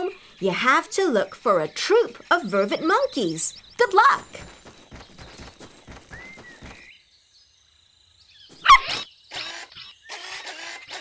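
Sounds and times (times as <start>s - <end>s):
cartoon puppy bark: 8.6s - 11.0s.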